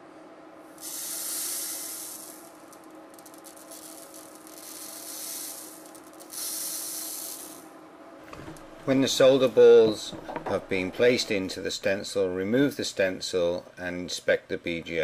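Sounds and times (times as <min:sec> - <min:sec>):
tiny balls pouring and rolling: 0:00.8 - 0:07.6.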